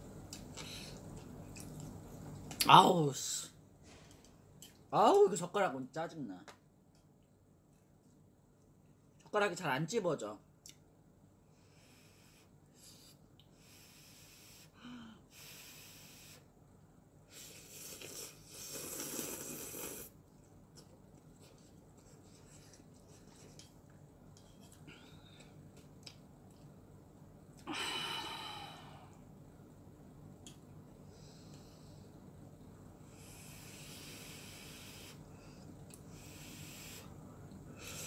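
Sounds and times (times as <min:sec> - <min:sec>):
person slurping noodles: 0:17.3 - 0:20.2.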